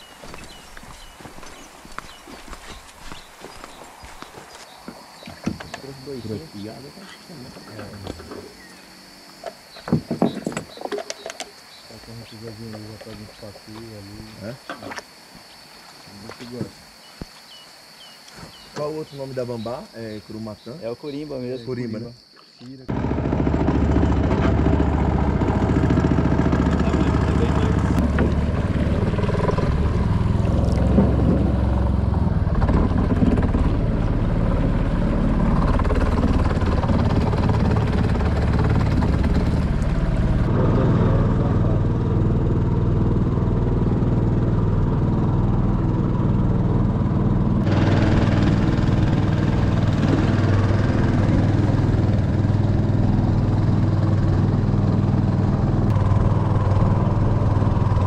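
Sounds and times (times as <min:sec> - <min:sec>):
outboard engine running: 0:22.9 - 0:58.0.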